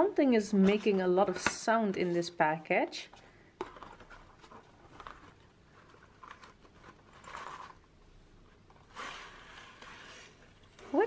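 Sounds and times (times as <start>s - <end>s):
paper box rustling: 3.6s - 7.9s.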